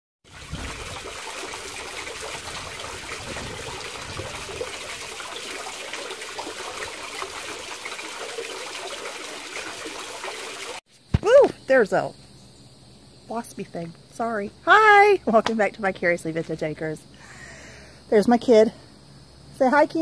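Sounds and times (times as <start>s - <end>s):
fountain water splashing into basin: 0.2s - 10.8s.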